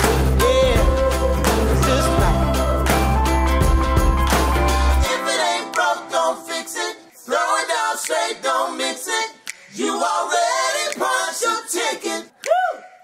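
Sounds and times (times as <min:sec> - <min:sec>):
voices singing a cappella: 0:00.0 - 0:03.4, 0:05.0 - 0:13.0.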